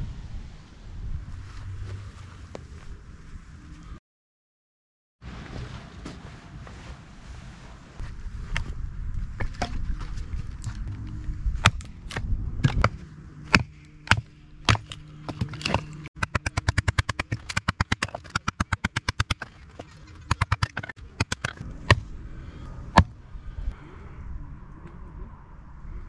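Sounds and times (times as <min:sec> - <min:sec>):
hatchet splitting wood: 0:11.6 - 0:22.1, 0:22.9 - 0:23.2
split wood pieces clattering: 0:13.5 - 0:21.6.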